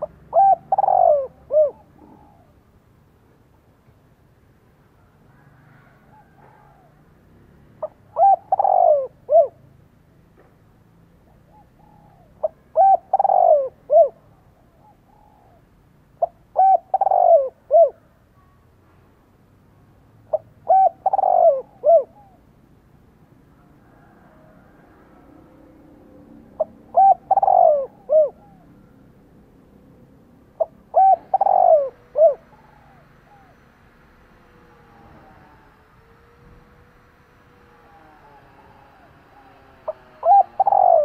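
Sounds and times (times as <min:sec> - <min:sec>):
dove cooing: 0:00.0 - 0:02.6, 0:05.3 - 0:09.8, 0:11.2 - 0:18.6, 0:20.3 - 0:22.5, 0:23.8 - 0:29.2, 0:30.4 - 0:41.0.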